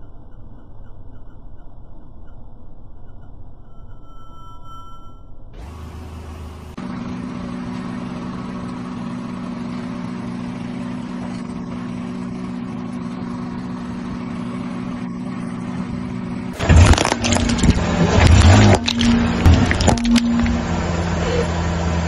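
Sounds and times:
car engine idling: 0:05.6 - 0:22.0.

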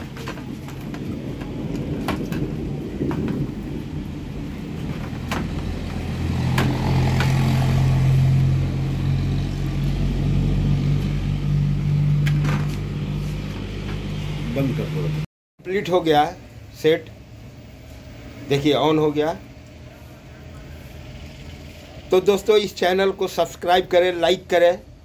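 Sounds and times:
low engine hum: 0:00.0 - 0:15.3.

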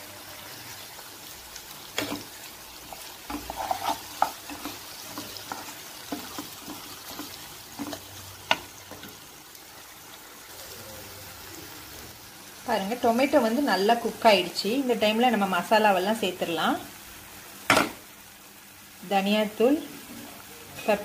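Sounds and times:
vegetables sizzling in a pan: 0:00.0 - 0:21.0
wooden spoon scraping a pan: 0:01.9 - 0:09.2.

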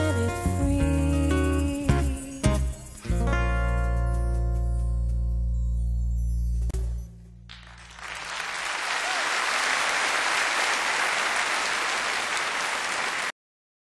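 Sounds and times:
audience applauding: 0:07.5 - 0:13.4.

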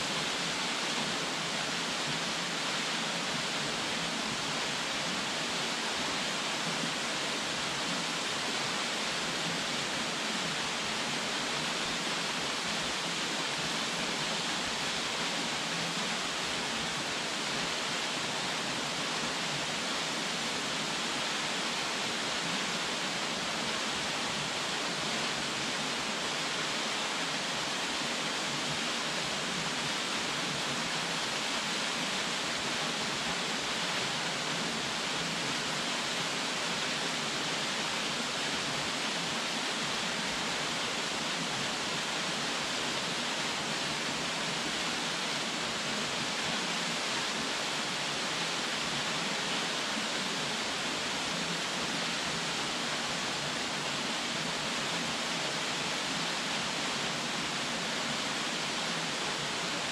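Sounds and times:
waterfall rushing: 0:00.0 - 0:59.9.

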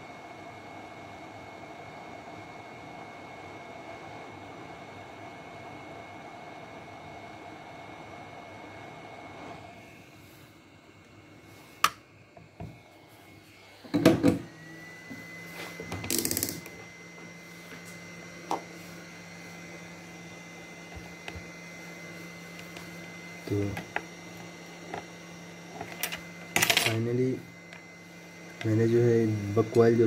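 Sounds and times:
tools knocking on bench: 0:13.9 - 0:14.4.

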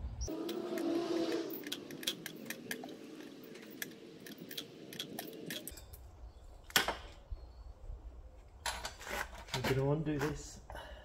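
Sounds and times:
metal pipe and tools clinking: 0:01.5 - 0:06.2.

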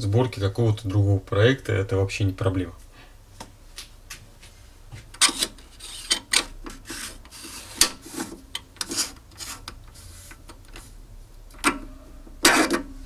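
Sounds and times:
metal-on-metal rubbing scrapes: 0:05.2 - 0:10.4, 0:12.4 - 0:13.0.

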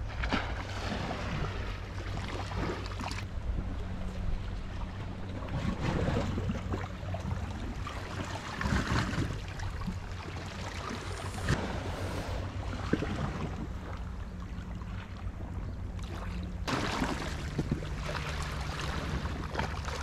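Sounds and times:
low motor hum: 0:00.0 - 0:20.0
wind on microphone: 0:03.7 - 0:14.4
sea water surging against shore: 0:04.7 - 0:14.1, 0:16.0 - 0:20.0.

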